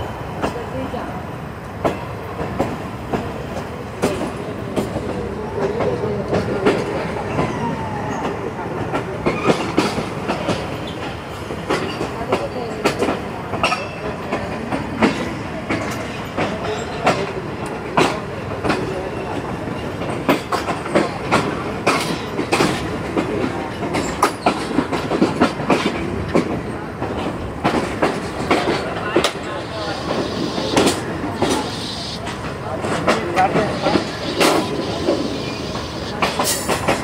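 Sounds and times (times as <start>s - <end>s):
train wheels rumbling on rails: 0.0s - 37.0s
wheels clacking over rail joints: 8.2s - 37.0s.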